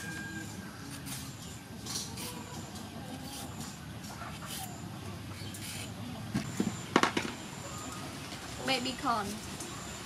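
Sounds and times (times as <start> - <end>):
vegetable peeler scraping cucumber: 0.9 - 6.1.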